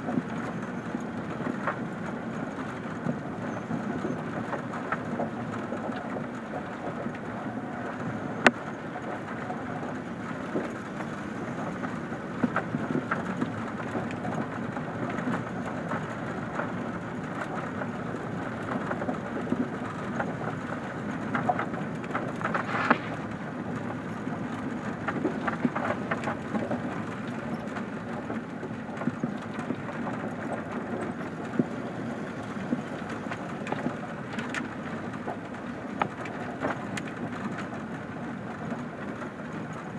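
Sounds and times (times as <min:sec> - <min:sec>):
gravel clicks and knocks: 0:07.9 - 0:39.7.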